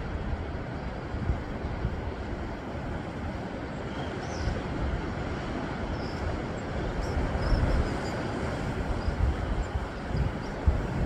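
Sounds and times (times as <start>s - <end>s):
sea waves washing over rocks: 0.0s - 11.0s
wind on microphone: 0.0s - 11.0s.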